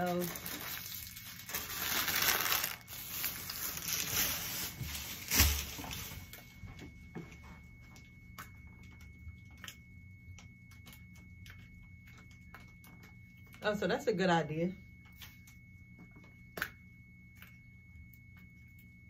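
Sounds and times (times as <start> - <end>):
plastic bags crinkling: 0.0 - 6.4.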